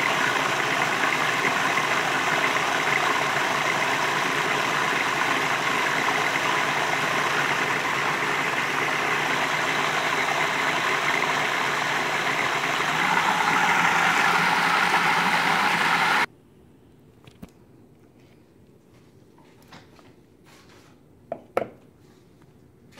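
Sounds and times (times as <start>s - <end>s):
food processor motor running: 0.0s - 16.3s.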